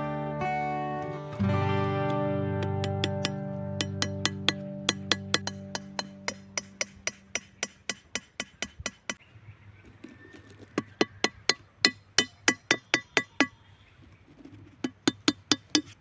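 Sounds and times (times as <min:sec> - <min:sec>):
machete tapping wooden pegs: 0:02.6 - 0:09.2, 0:10.8 - 0:13.6, 0:14.8 - 0:16.0.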